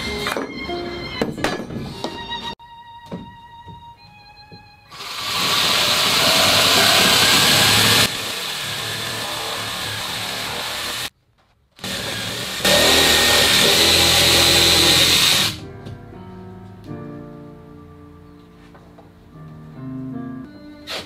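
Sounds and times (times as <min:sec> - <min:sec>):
soft music with held notes: 0:00.0 - 0:05.0, 0:15.6 - 0:21.0.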